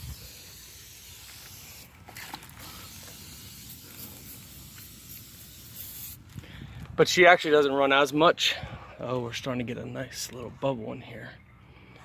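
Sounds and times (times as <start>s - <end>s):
aerosol spray hissing: 0.0s - 1.9s, 2.6s - 6.3s.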